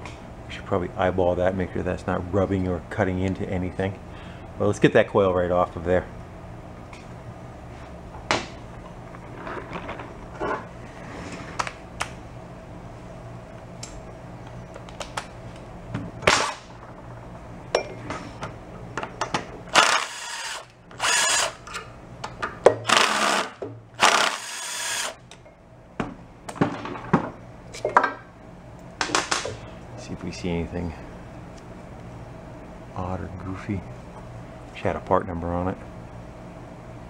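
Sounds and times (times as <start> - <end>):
cordless driver spinning bolts: 19.7 - 21.8, 22.9 - 25.2.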